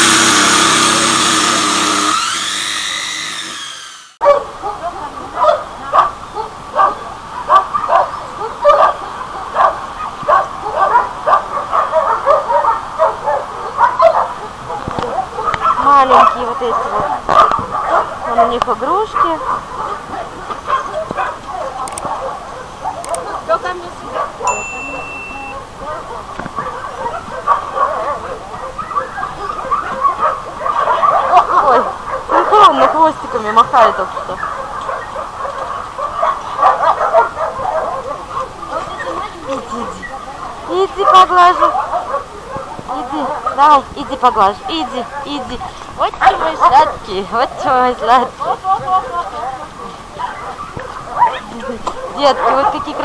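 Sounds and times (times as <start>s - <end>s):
dogs barking and yipping: 0.0s - 53.0s.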